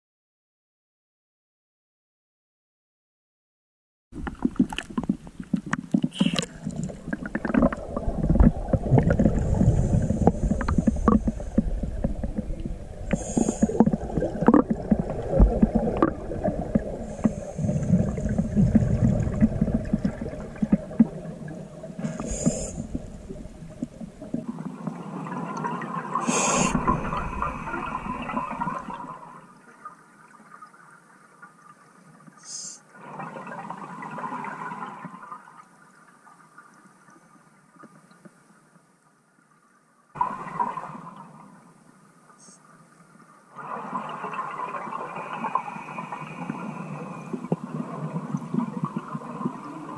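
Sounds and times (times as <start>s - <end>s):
underwater breathing bubbles: 4.2s - 29.4s, 43.6s - 49.9s.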